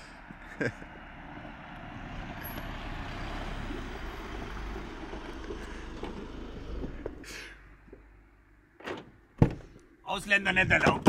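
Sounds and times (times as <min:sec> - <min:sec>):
van driving past: 0:00.0 - 0:07.9.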